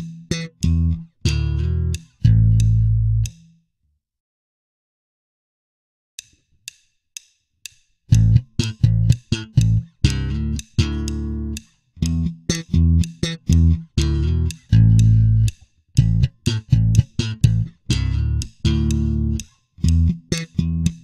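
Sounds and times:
count-in clicks: 0.0s - 3.4s, 7.7s - 21.0s
slap electric bass: 0.0s - 3.4s, 8.1s - 21.0s.

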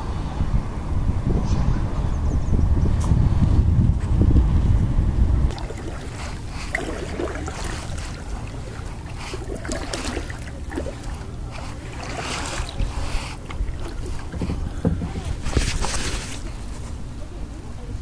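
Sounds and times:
wind rumble on microphone: 0.0s - 18.0s
kayak paddle splashing: 5.5s - 17.1s.

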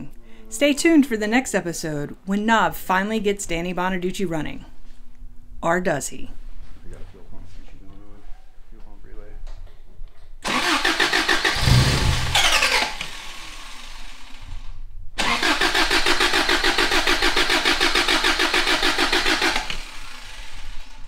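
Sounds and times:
engine cranked by starter: 10.4s - 21.0s.

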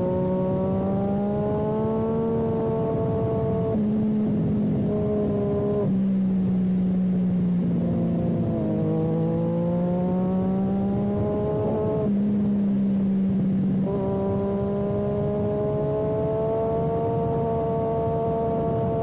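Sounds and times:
motorcycle engine at speed: 0.0s - 19.0s.

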